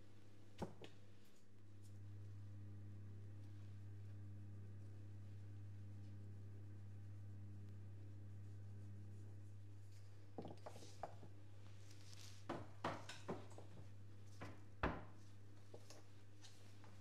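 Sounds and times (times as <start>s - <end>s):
kitchen items knocking on counter: 12.5s - 13.8s.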